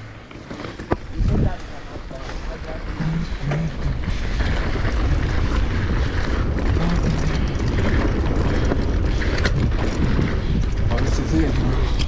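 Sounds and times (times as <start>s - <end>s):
bike rattling clicks: 0.0s - 12.0s
tyres rolling over dirt: 0.0s - 12.0s
wind buffeting microphone: 0.9s - 12.0s.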